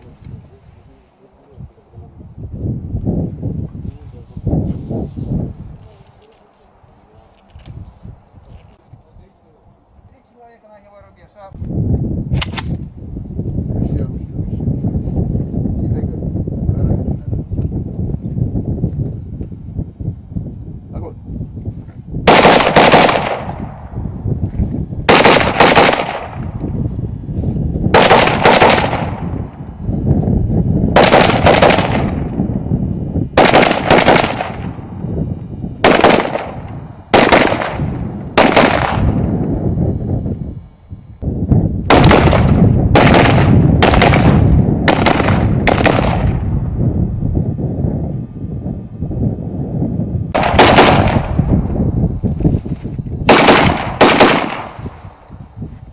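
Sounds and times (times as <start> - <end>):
rifle shots echoing: 22.3 - 23.7, 25.1 - 26.5, 27.9 - 29.3, 31.0 - 32.3, 33.4 - 34.8, 35.8 - 39.3, 41.9 - 46.4, 50.4 - 51.4, 53.3 - 54.8
low rumble: 23.2 - 55.9.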